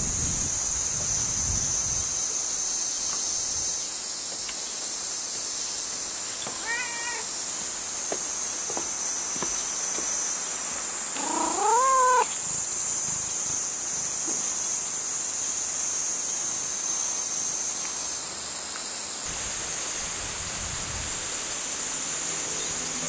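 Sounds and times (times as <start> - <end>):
cicadas chorus: 0.0 - 23.0
cat meowing: 6.5 - 7.3, 11.2 - 12.4.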